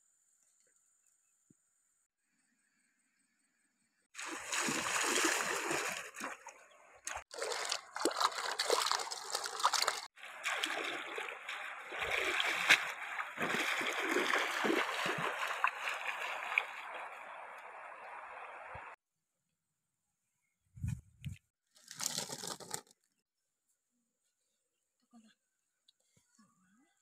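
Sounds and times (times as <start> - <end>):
water pouring through basket: 4.2 - 6.5, 7.1 - 17.3, 21.8 - 22.9
water splashing from wading: 4.2 - 19.0.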